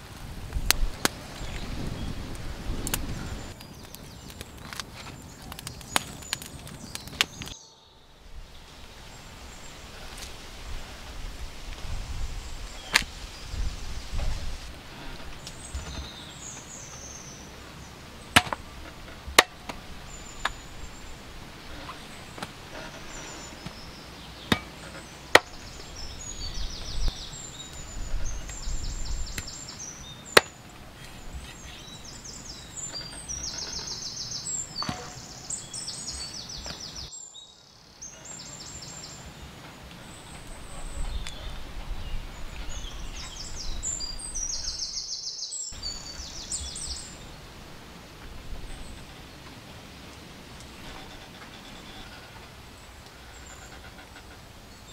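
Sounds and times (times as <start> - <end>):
machete chopping on wooden block: 18.4 - 18.6, 19.4 - 19.8, 24.5 - 24.8, 25.4 - 25.6.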